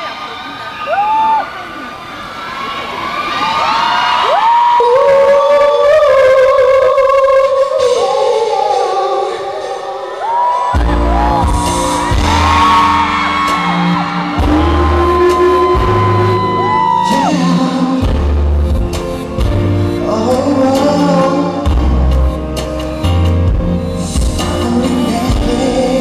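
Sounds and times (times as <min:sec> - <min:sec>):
live pop music: 0:04.2 - 0:26.0
man singing: 0:04.8 - 0:26.0
heavy bass notes: 0:10.8 - 0:26.0.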